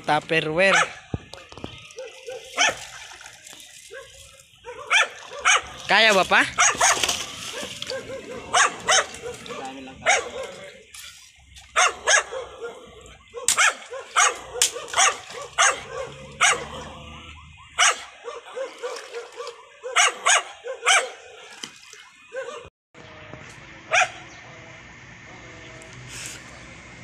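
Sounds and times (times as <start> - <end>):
dog barking: 0.7 - 1.1, 2.0 - 2.9, 3.9 - 5.8, 6.5 - 10.8, 11.7 - 17.0, 17.6 - 21.6, 22.3 - 22.7, 23.9 - 24.2.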